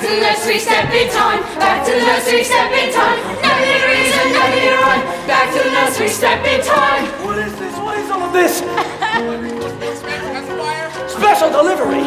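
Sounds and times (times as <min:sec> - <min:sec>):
chorus singing show tune: 0:00.0 - 0:08.8
musical accompaniment: 0:00.0 - 0:12.0.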